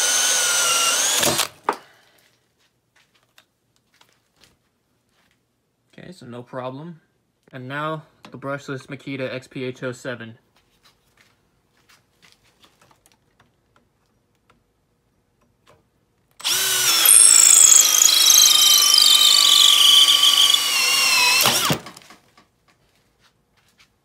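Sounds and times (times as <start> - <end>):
drill motor whine with cutting screech: 0.0 - 1.5, 16.4 - 22.0.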